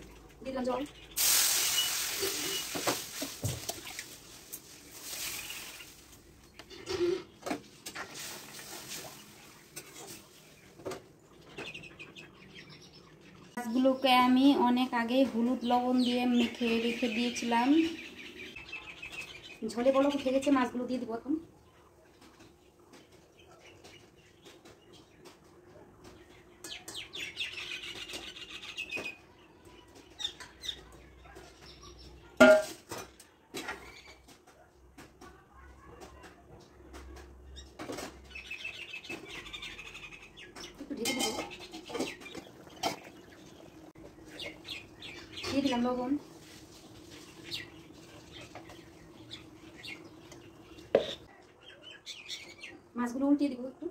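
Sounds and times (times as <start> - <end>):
hot oil hissing: 1.1 - 6.2
water pouring: 1.2 - 6.1
steel utensils clanging: 41.0 - 42.1.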